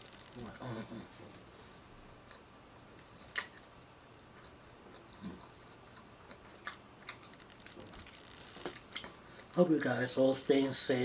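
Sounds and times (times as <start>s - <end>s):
person chewing food: 2.2s - 9.6s.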